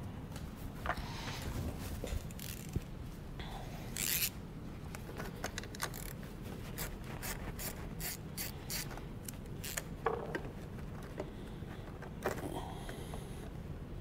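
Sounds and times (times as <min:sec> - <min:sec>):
ratchet clicking: 0:02.3 - 0:02.8, 0:04.0 - 0:04.3, 0:06.8 - 0:09.9.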